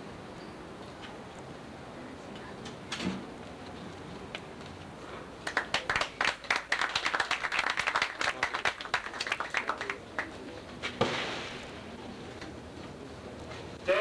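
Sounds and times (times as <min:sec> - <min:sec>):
scattered applause: 0:05.4 - 0:10.5.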